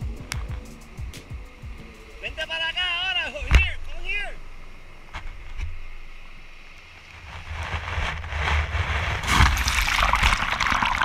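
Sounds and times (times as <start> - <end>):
water buffeting microphone: 1.4 - 11.0
wave rushing up sand: 6.6 - 11.0.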